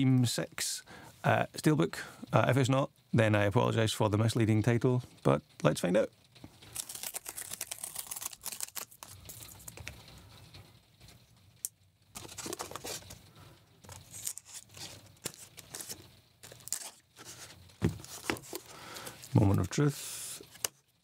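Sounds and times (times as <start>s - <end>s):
packing tape tearing: 6.6s - 10.0s, 12.2s - 13.2s, 13.8s - 19.6s
cardboard scraping and rustling: 12.2s - 13.2s, 13.8s - 19.7s.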